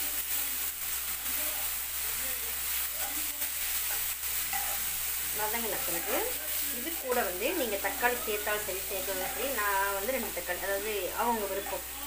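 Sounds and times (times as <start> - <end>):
onions sizzling in hot oil: 0.0 - 12.0
metal spoon scraping a pan: 2.9 - 10.9.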